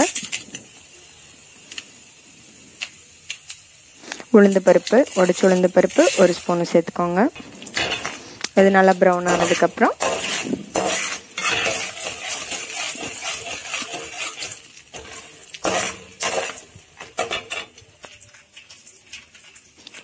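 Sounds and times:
lentils sizzling in oil: 0.0s - 20.0s
metal spoon scraping pan: 4.8s - 6.5s, 7.4s - 8.5s, 9.1s - 17.8s.

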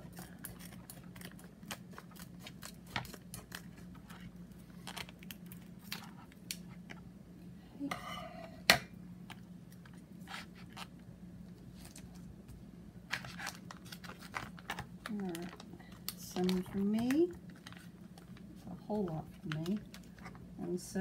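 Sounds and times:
steady low hum: 0.0s - 21.0s
scissors snipping food pouch: 0.1s - 4.2s.

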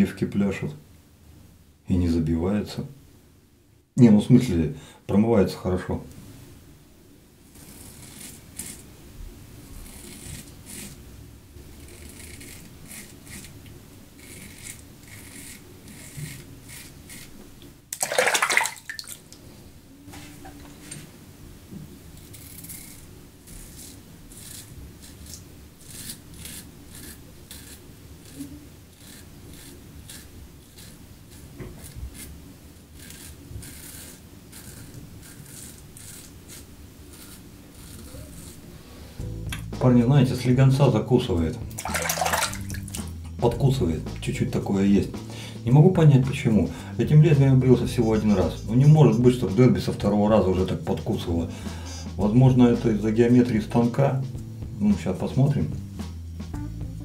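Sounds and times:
razor scraping stubble: 7.5s - 8.9s, 9.7s - 11.0s, 11.7s - 17.4s, 22.2s - 39.8s, 41.4s - 46.6s
running tap water: 18.0s - 19.2s, 41.7s - 43.0s.

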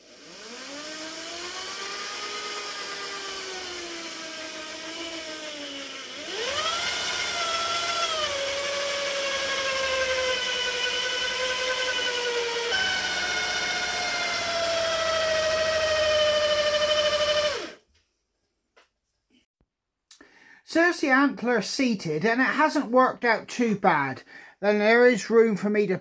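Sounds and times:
electric drill whining: 0.0s - 17.8s.

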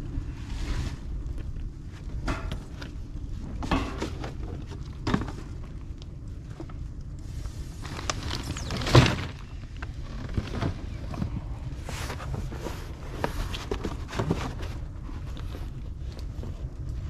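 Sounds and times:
wind rumbling on microphone: 0.0s - 17.0s
cardboard box rustling and scraping: 7.8s - 15.8s.

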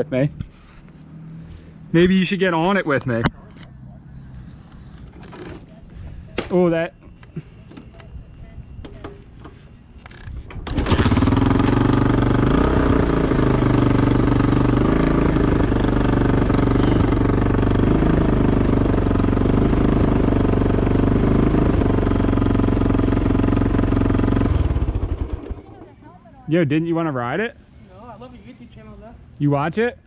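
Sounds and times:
dirt bike engine running: 8.3s - 27.0s.

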